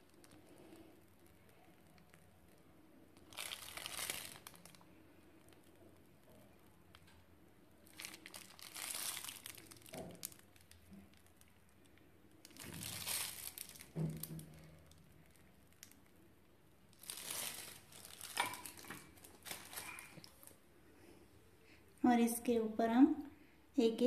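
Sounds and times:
piping bag crinkling: 0.0s - 20.6s.

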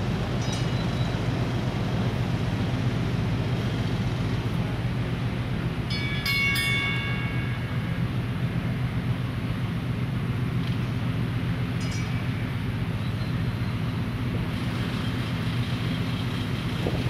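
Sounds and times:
low rumble of locomotives: 0.0s - 17.0s
high metallic ringing: 0.3s - 1.3s, 5.8s - 9.1s, 11.6s - 14.0s.

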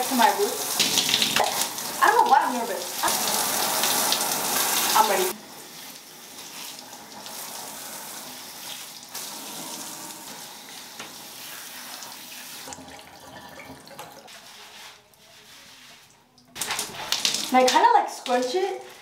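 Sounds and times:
shower spraying water on hair: 0.0s - 12.8s, 14.3s - 19.0s.

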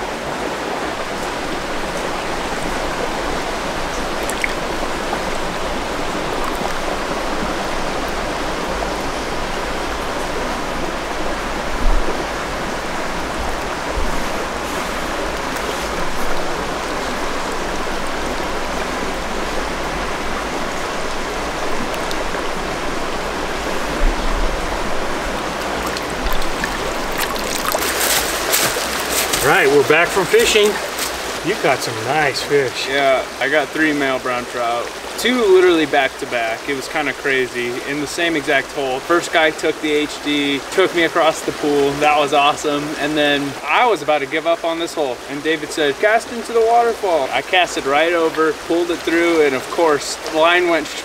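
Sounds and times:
creek running over rocks: 0.0s - 51.0s
low bumps: 11.7s - 32.4s.

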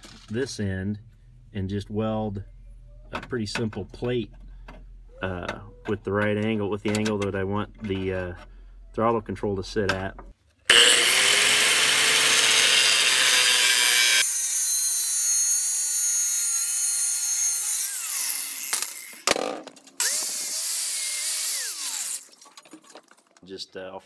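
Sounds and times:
angle grinder cutting metal: 10.7s - 19.4s, 20.0s - 22.3s.

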